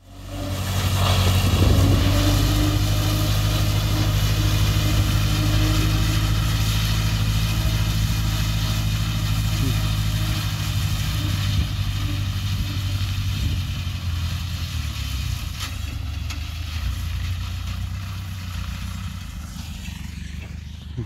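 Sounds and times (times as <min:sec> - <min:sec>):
diesel tractor running: 0:00.0 - 0:21.0.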